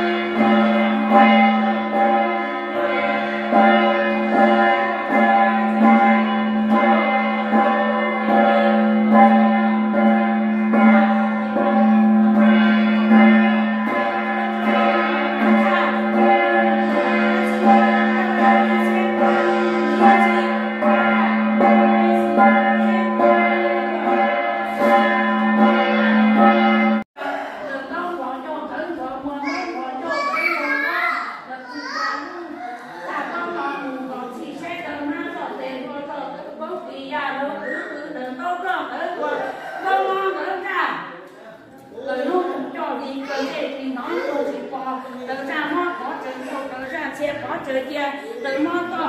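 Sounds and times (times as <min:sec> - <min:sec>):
metal gong ringing: 0:00.0 - 0:27.1.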